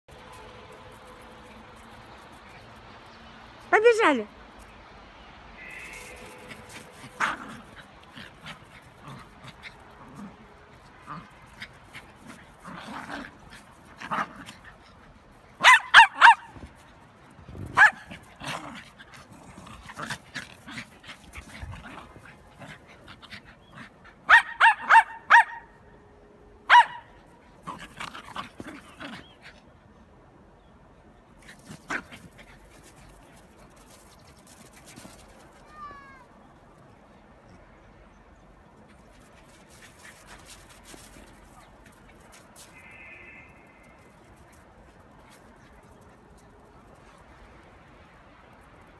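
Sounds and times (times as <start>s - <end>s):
small dogs yipping: 17.7s - 18.7s.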